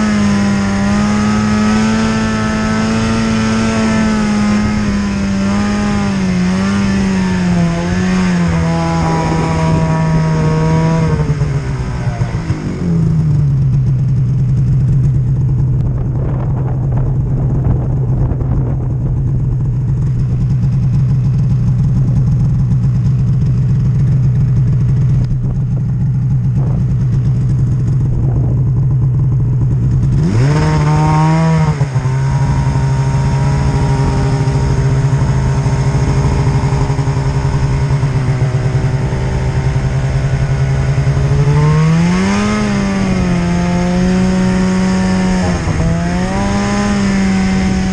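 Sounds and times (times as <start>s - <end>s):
snowmobile engine running: 0.0s - 47.9s.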